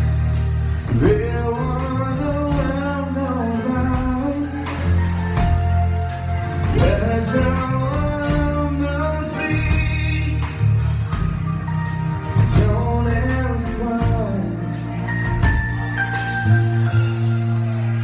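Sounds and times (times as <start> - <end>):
music with bass and beat: 0.0 - 18.0
man singing into microphone: 0.9 - 5.1, 6.7 - 10.8, 12.4 - 15.1.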